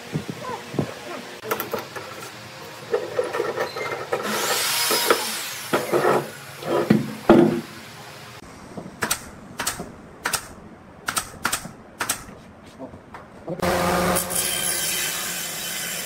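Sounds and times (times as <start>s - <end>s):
wood scraping on workbench: 5.8s - 7.7s
pneumatic nailer shots: 9.0s - 12.3s.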